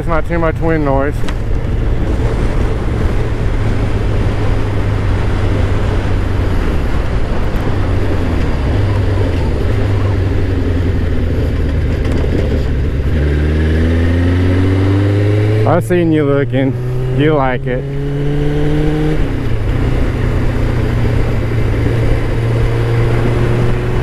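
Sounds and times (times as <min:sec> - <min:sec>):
wind noise on microphone: 0:00.0 - 0:15.6
motorcycle engine running: 0:00.0 - 0:24.0.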